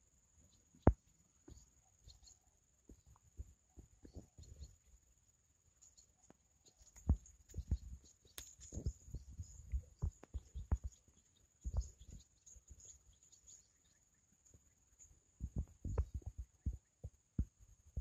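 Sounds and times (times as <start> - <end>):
low thumps on microphone: 7.0 - 11.0, 11.6 - 12.2, 15.4 - 18.0.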